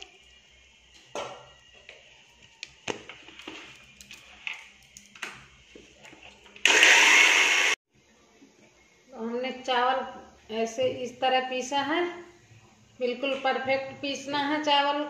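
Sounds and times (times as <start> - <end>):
mixer grinder grinding: 6.6 - 7.8.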